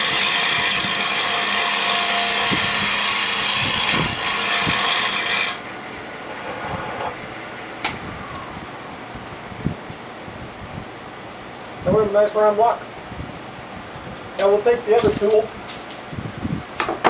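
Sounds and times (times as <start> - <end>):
tool scraping wood on lathe: 0.0 - 5.6, 6.3 - 7.2
lathe running: 0.0 - 7.6.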